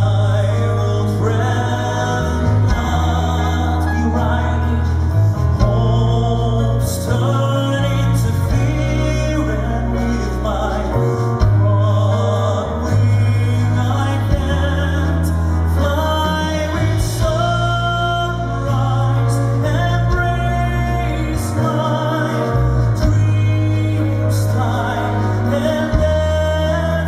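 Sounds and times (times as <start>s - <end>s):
man singing a slow ballad: 0.0s - 27.0s.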